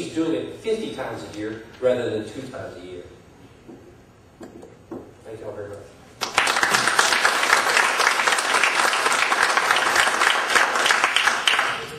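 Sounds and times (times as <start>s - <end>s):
audience applauding: 6.2s - 11.9s.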